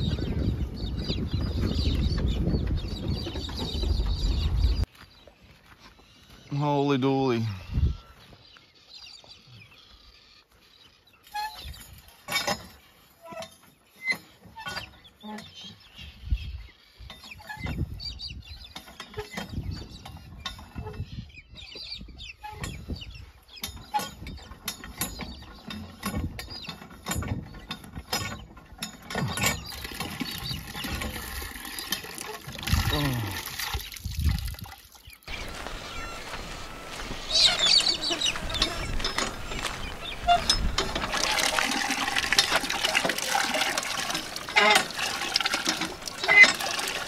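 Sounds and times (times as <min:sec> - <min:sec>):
hand pump squeaking and clanking: 0:11.2 - 0:16.2, 0:16.9 - 0:34.3, 0:35.3 - 0:47.0
water splashing into metal drum: 0:29.5 - 0:35.0, 0:37.3 - 0:47.0.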